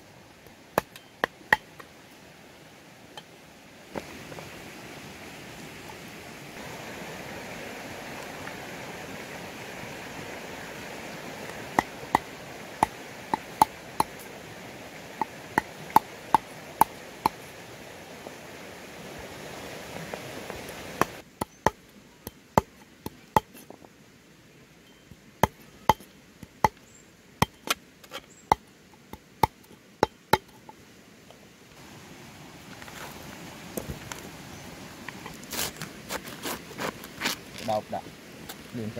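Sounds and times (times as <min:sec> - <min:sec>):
steady hiss: 0:00.0 - 0:38.9.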